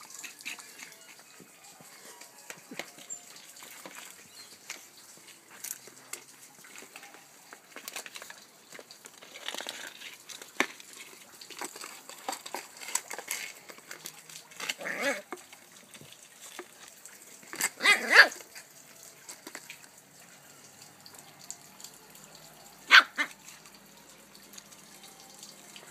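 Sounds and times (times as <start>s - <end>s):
puppy barking: 14.6s - 15.3s, 17.6s - 18.5s, 22.7s - 23.6s
puppy yipping: 14.6s - 15.3s, 17.6s - 18.5s, 22.6s - 23.6s.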